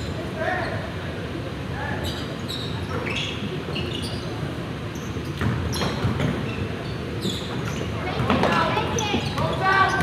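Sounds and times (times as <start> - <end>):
murmur in the hall: 0.0 - 10.0
shoe squeaks: 2.0 - 10.0
basketball bouncing on gym floor: 5.4 - 6.4, 8.1 - 8.6.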